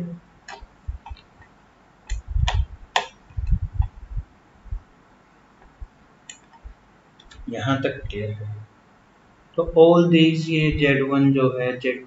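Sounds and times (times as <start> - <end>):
sharp clicks: 5.6 - 7.5.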